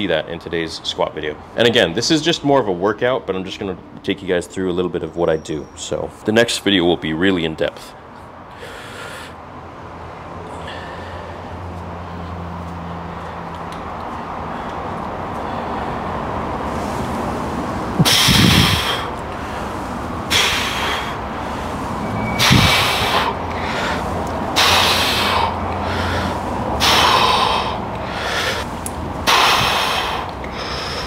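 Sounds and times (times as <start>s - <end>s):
steady low hum: 7.9s - 31.0s
man breathing hard: 8.4s - 9.6s, 10.4s - 12.5s, 14.2s - 31.0s.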